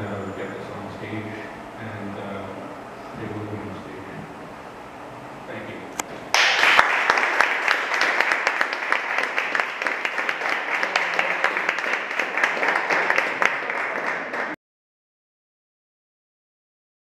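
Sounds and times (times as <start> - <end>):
audience applauding: 6.3 - 14.6.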